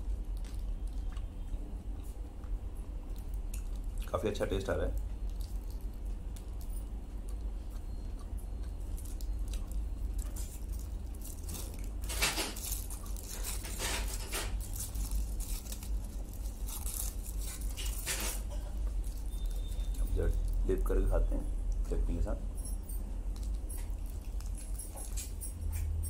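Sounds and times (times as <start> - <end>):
steady low hum: 0.0 - 26.0
foil wrapper crinkling: 8.9 - 21.1.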